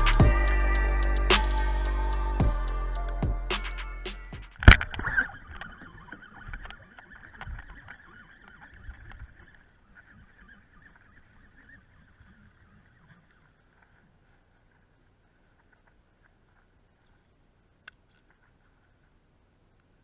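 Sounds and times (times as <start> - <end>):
sharp click: 0.0 - 0.2, 1.1 - 1.7, 3.0 - 5.0
fishing reel whirring: 5.0 - 13.5.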